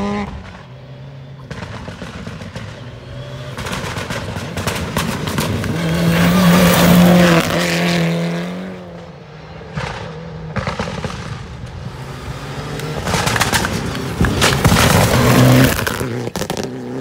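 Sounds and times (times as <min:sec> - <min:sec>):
rally car engine passing at speed: 0:00.0 - 0:17.0
sharp cracks: 0:12.7 - 0:16.7.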